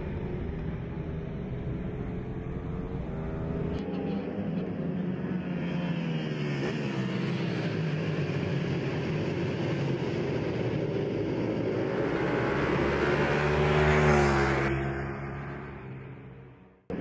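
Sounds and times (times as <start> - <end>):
racing motorcycles at high revs: 2.7 - 16.2.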